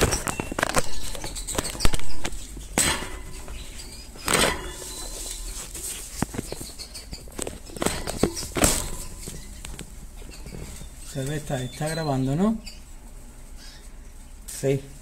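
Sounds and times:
wire bird cage rattling: 0:00.0 - 0:05.6, 0:06.2 - 0:12.1.

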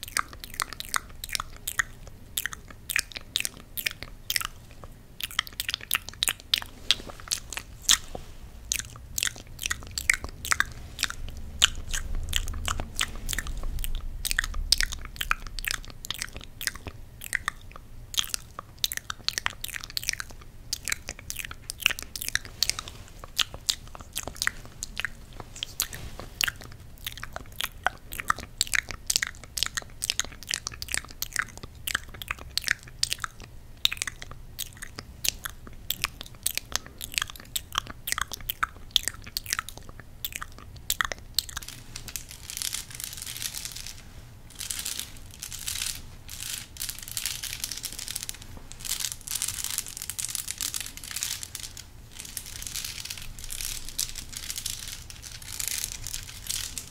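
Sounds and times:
wet fingers clicking: 0:00.0 - 0:41.6
crown rustling against microphone: 0:06.3 - 0:14.7, 0:21.5 - 0:27.5, 0:41.6 - 0:56.9.

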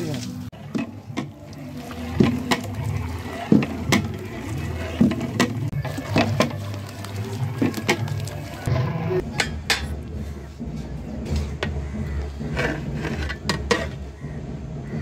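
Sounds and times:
liquid pouring into pot: 0:00.6 - 0:08.7.

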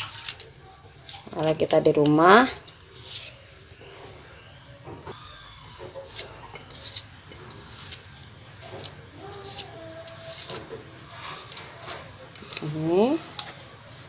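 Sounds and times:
knife slicing ginger: 0:01.0 - 0:03.4, 0:05.8 - 0:12.9.

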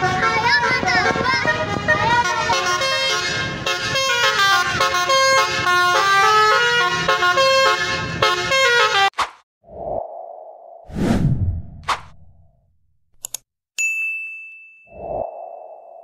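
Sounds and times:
multi-tone horn melody: 0:00.0 - 0:09.1.

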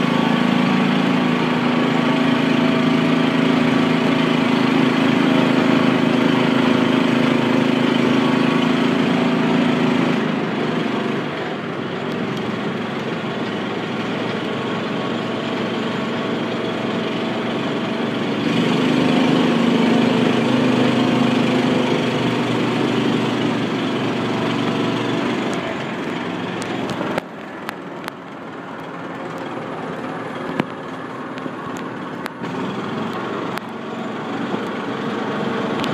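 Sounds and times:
buggy engine running: 0:00.0 - 0:35.9.

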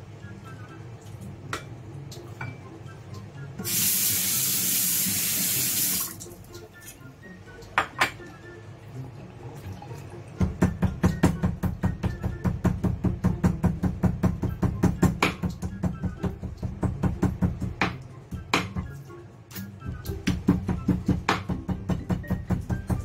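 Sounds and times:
soft background music: 0:00.0 - 0:23.0
tap water running into sink: 0:03.6 - 0:06.4.

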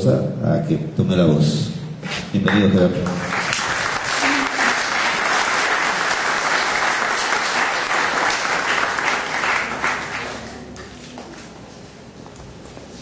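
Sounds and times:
audience applauding: 0:02.5 - 0:11.2.

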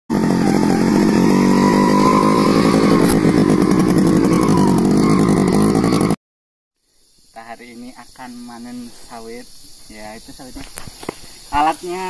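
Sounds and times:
small motorcycle engine running: 0:00.1 - 0:06.2.

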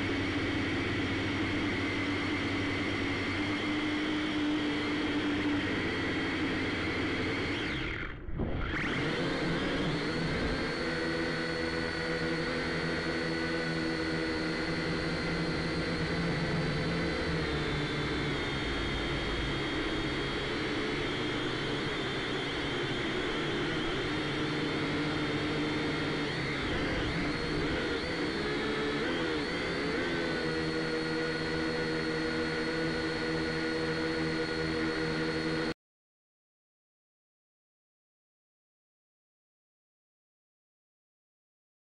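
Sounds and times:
drone propellers whining: 0:00.0 - 0:35.7.

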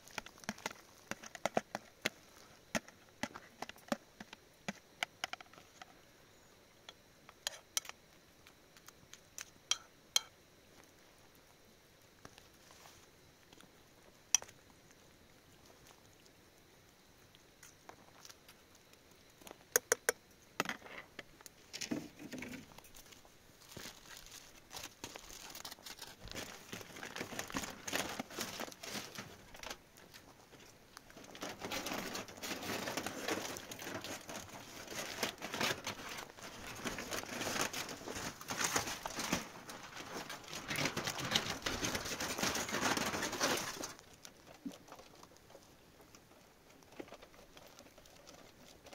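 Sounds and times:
aluminium foil crinkling: 0:00.0 - 0:06.0, 0:20.8 - 0:48.9.

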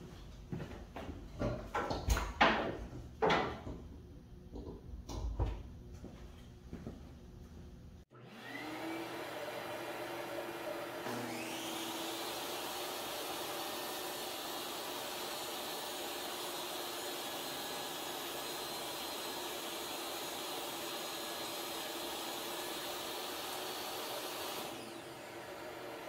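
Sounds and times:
table saw motor whine: 0:08.1 - 0:26.0
saw cutting board: 0:08.2 - 0:26.0.

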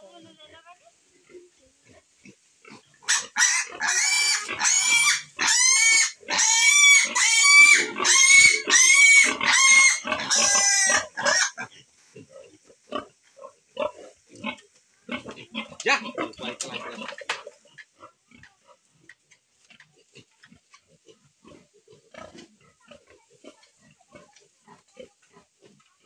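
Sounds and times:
piglet squealing shrilly: 0:03.1 - 0:11.6.

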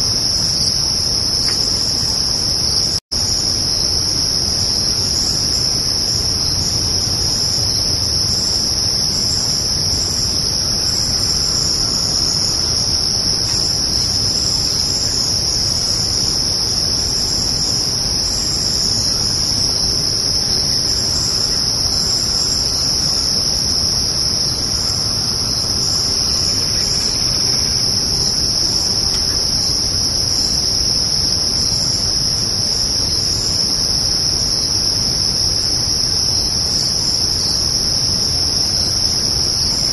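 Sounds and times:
crickets trilling: 0:00.0 - 0:39.9.

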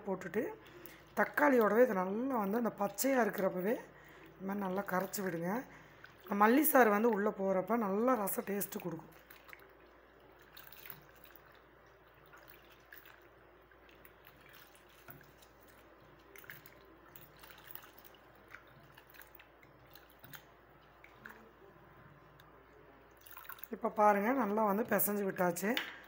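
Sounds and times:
wet squelching and splashes: 0:04.6 - 0:21.7, 0:23.1 - 0:24.5.

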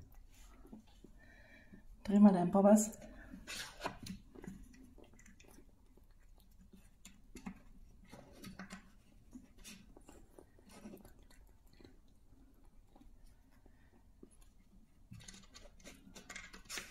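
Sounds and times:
wooden puzzle feeder clicks and scrapes: 0:15.1 - 0:16.9.

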